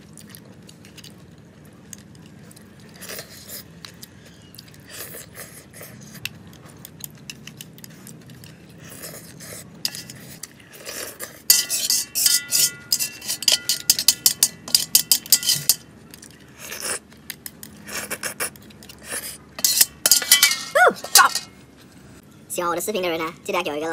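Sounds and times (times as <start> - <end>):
utensils scraping a steel wok: 9.8 - 15.9, 19.1 - 21.5
wok ringing: 11.5 - 15.9, 19.6 - 21.6.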